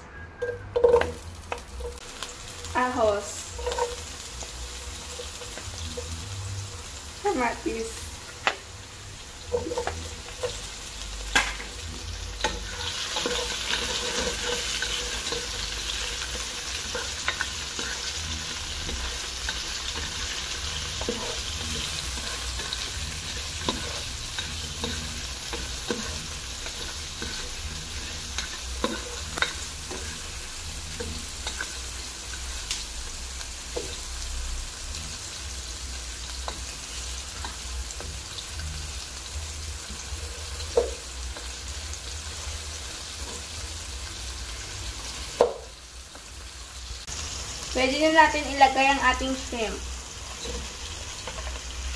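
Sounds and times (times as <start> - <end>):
spatula scraping pan: 0.4 - 6.4, 11.4 - 32.4
vegetables sizzling in hot oil: 0.4 - 51.9.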